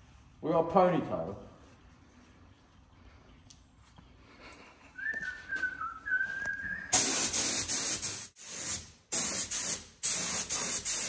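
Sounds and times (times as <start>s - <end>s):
person whistling a tune: 5.0s - 7.0s
spray paint hissing: 6.9s - 11.0s.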